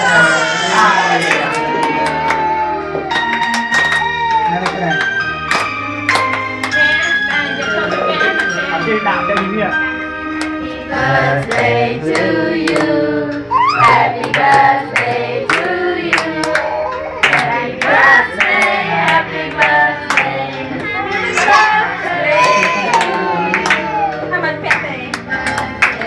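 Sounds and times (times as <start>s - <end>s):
people clapping in time: 1.1s - 7.5s, 8.2s - 8.6s, 10.4s - 10.6s, 11.4s - 13.0s, 13.6s - 26.0s
group singing: 10.6s - 24.2s, 24.9s - 26.0s.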